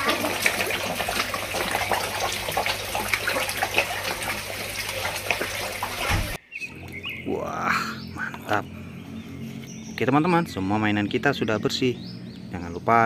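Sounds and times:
fish splashing at water surface: 0.0s - 6.4s
low steady hum: 0.0s - 13.0s.

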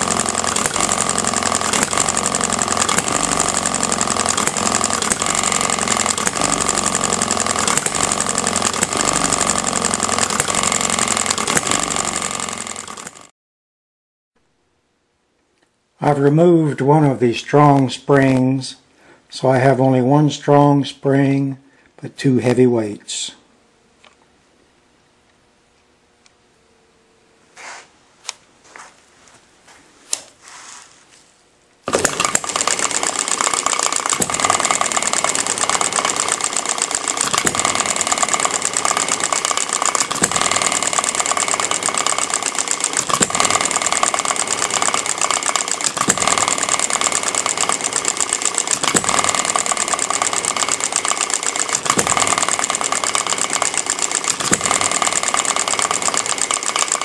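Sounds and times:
hit-and-miss engine running: 0.0s - 13.3s, 31.8s - 57.0s.

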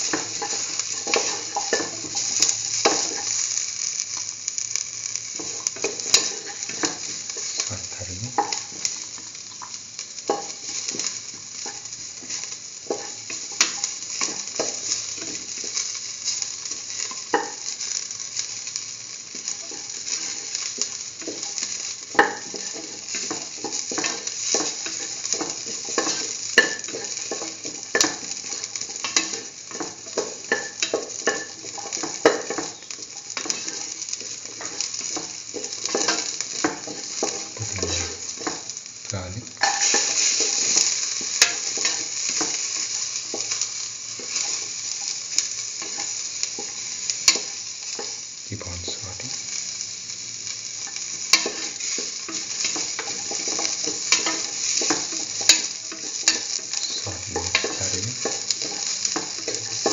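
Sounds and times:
spatula scraping a pan: 0.0s - 3.4s, 19.3s - 38.7s, 39.6s - 45.2s, 50.8s - 59.9s
onions sizzling in oil: 0.0s - 59.9s.

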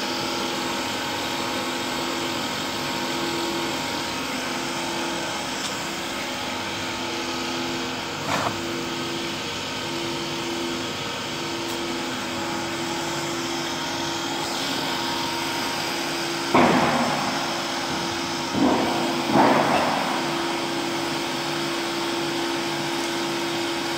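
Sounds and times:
extruder motor humming: 3.7s - 21.6s.

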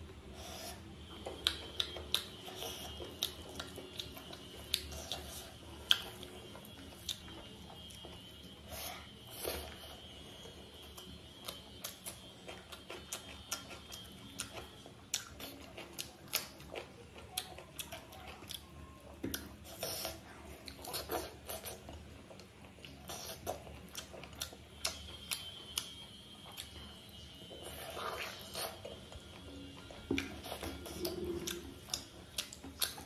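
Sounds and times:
chewing and lip smacks: 0.0s - 33.0s.

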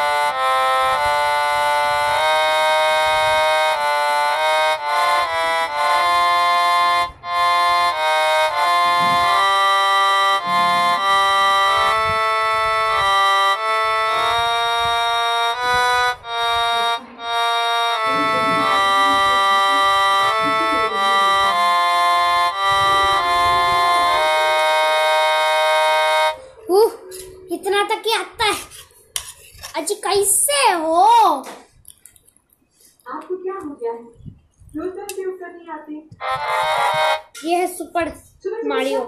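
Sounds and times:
harmonium melody: 0.0s - 28.1s, 36.1s - 37.7s.

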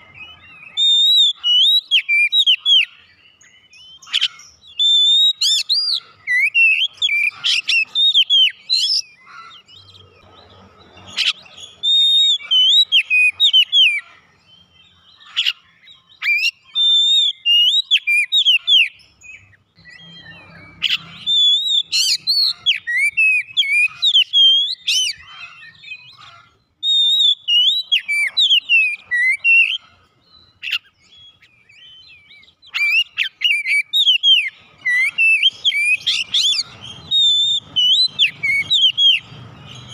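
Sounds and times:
bird singing whistles and chips: 0.0s - 9.2s, 14.6s - 29.8s, 30.4s - 39.9s.

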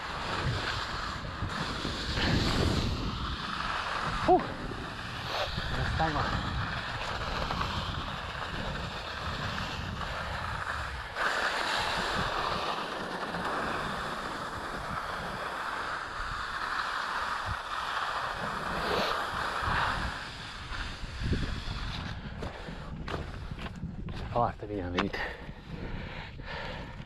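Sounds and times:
skis hissing over snow: 0.0s - 23.6s
wind rumbling on microphone: 0.0s - 27.0s.

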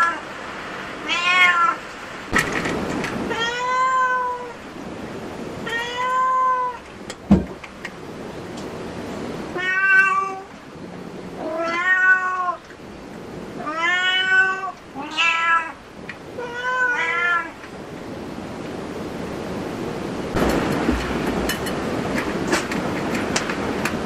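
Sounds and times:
cat meowing: 1.0s - 1.8s, 3.3s - 4.6s, 5.6s - 6.8s, 9.5s - 10.5s, 11.4s - 12.6s, 13.6s - 17.6s.

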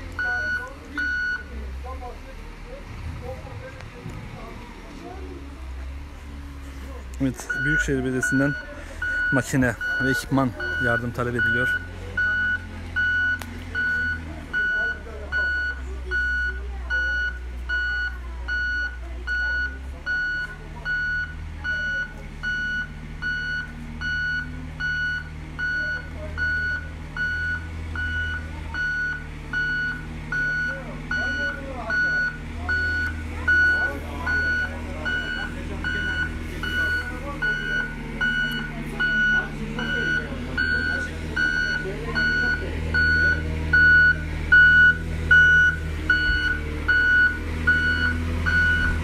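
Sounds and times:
diesel engine drone: 0.0s - 49.0s
reversing alarm beeps: 0.2s - 1.5s, 7.4s - 49.0s.

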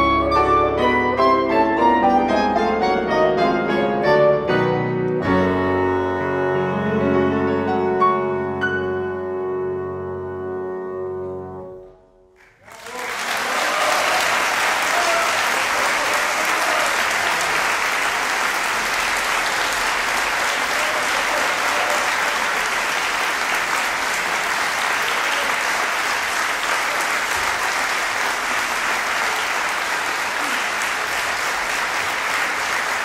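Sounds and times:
clarinet bassoon and piano chord: 0.0s - 12.4s
audience applauding: 12.4s - 33.0s.

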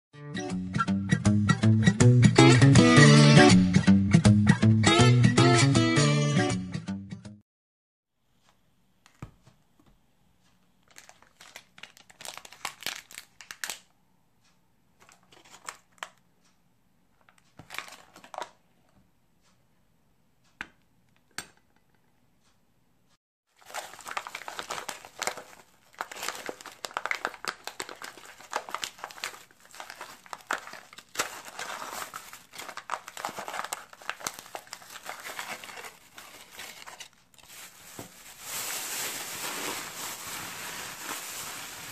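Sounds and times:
plastic packaging crinkling: 10.8s - 13.9s, 15.0s - 16.2s, 17.4s - 18.6s, 23.6s - 41.9s
biscuits tipped into plastic bag: 23.6s - 41.9s.

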